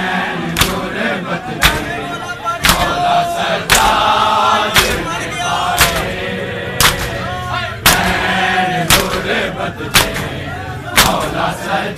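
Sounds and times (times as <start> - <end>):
men chanting: 0.0 - 11.9
hands slapping chests in unison: 0.5 - 1.0, 1.6 - 2.0, 2.6 - 4.1, 4.7 - 5.2, 5.8 - 6.2, 6.8 - 8.2, 8.9 - 11.4.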